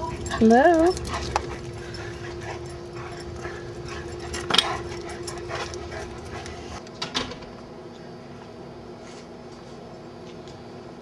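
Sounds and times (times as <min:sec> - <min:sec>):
dogs playing: 0:00.0 - 0:06.8.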